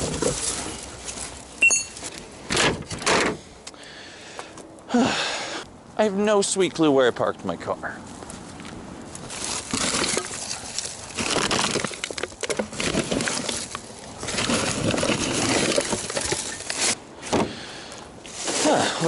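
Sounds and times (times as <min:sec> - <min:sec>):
leaves and plastic bags rustling: 0:00.0 - 0:02.5, 0:07.4 - 0:17.3, 0:18.2 - 0:19.0.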